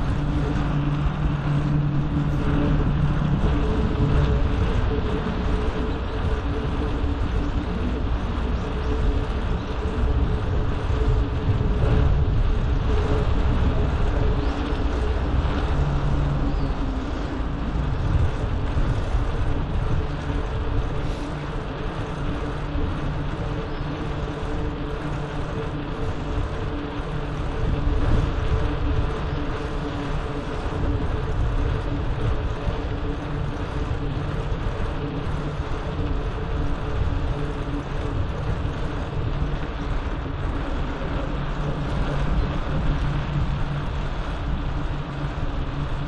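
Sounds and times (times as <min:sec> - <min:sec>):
faint steady hum: 0:00.0 - 0:46.0
wind and road noise: 0:00.0 - 0:46.0.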